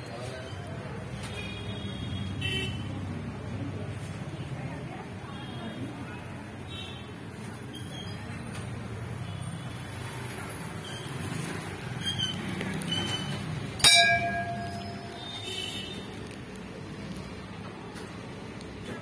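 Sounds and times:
low background murmur: 0:00.0 - 0:19.0
metal bell ringing: 0:13.8 - 0:15.4.

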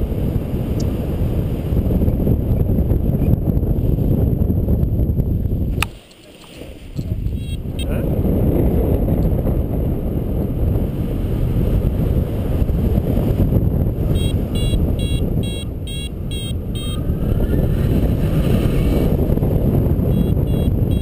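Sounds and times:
wind rushing over microphone: 0:00.0 - 0:21.0
variometer beeping: 0:14.1 - 0:17.0, 0:20.1 - 0:21.0.

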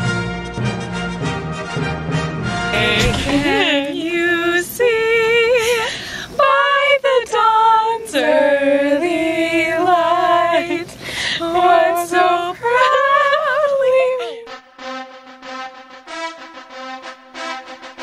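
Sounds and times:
women singing unaccompanied: 0:02.8 - 0:14.5.

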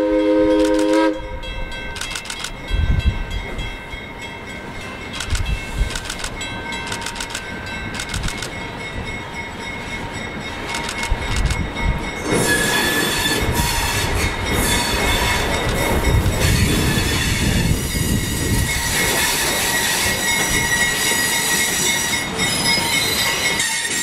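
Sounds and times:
train wheels squealing on rails: 0:06.8 - 0:24.0.

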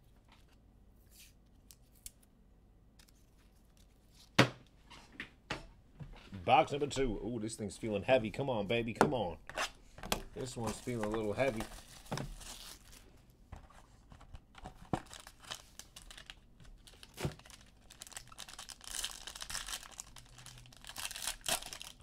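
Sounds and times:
foil pack crinkling: 0:10.4 - 0:13.2, 0:14.6 - 0:22.0.

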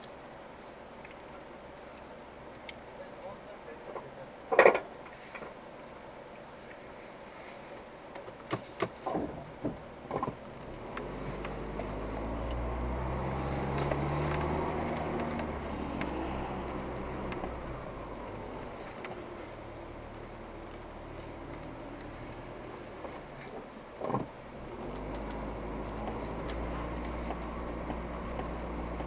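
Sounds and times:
sharp knocks and clicks: 0:08.2 - 0:12.6
engine pulling under load: 0:09.0 - 0:29.0.

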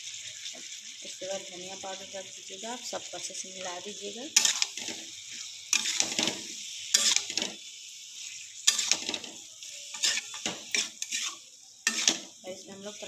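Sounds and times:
food sizzling: 0:00.0 - 0:13.0
metal spatula scraping a pan: 0:03.7 - 0:13.0.

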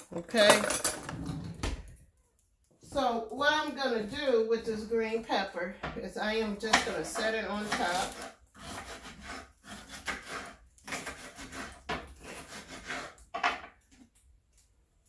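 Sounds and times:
knife slicing pepper on wooden board: 0:06.7 - 0:13.2.

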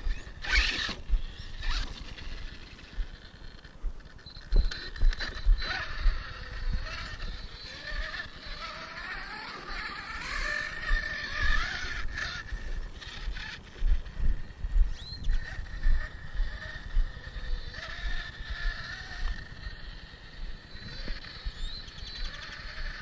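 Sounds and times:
electric motor whining: 0:00.0 - 0:23.0.

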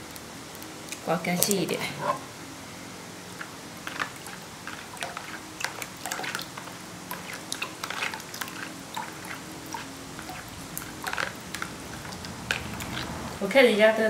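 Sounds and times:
jelly dripping into water: 0:03.3 - 0:13.4
wet squishes: 0:03.4 - 0:13.4.

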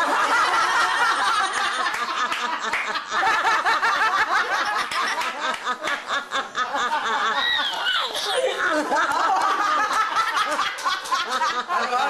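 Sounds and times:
people laughing: 0:00.0 - 0:12.0
baby giggling: 0:07.4 - 0:08.8.

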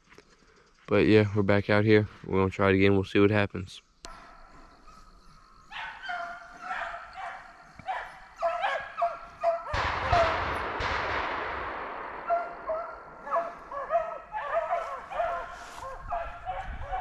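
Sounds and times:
hounds baying and yelping: 0:04.1 - 0:10.5, 0:12.2 - 0:17.0
sudden loud burst of noise: 0:09.8 - 0:13.7.

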